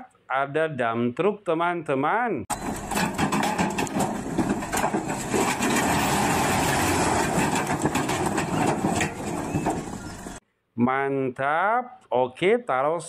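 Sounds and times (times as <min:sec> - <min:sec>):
rocks clattering off truck bed: 0:02.5 - 0:10.4
truck engine running: 0:02.5 - 0:10.4.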